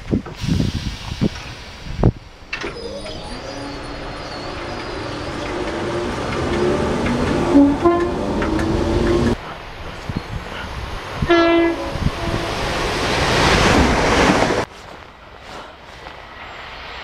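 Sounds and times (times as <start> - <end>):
electric train running and motor hum: 1.2 - 14.4
short loud tone: 2.6 - 6.3.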